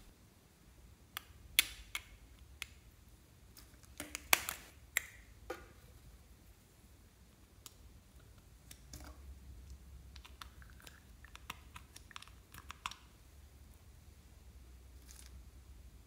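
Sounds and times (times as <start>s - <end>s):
plastic spatula clicking in pot: 9.7s - 13.1s.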